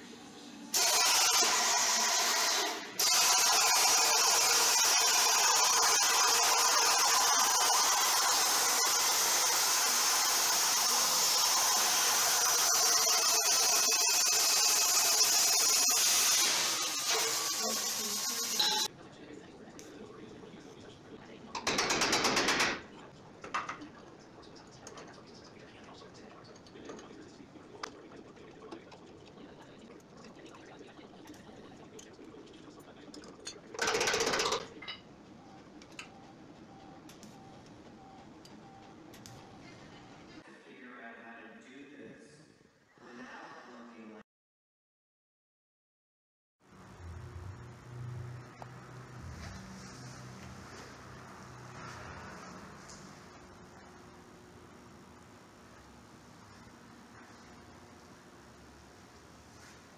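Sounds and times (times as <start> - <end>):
welder arc crackling hiss: 0.8 - 18.9.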